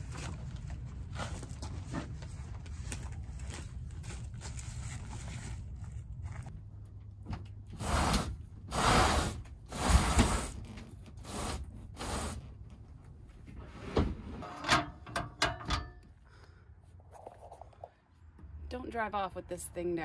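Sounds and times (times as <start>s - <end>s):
metal step clanking and scraping: 14.4s - 16.0s.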